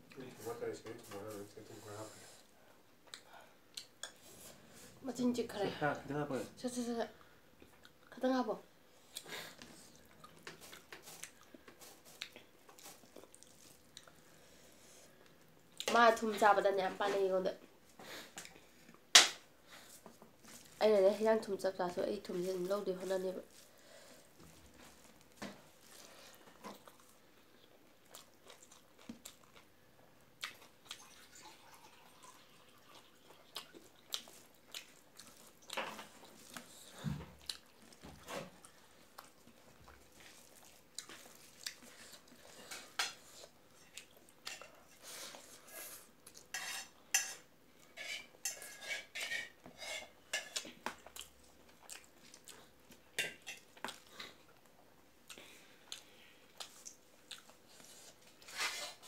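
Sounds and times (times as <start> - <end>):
chewing and lip smacks: 26.7 - 29.7, 30.4 - 31.2, 32.9 - 38.0, 38.6 - 42.4, 50.6 - 53.0, 53.7 - 57.9.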